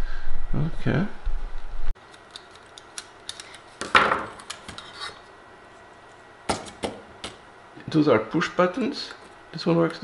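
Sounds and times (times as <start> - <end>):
low hum: 0.0 - 2.0.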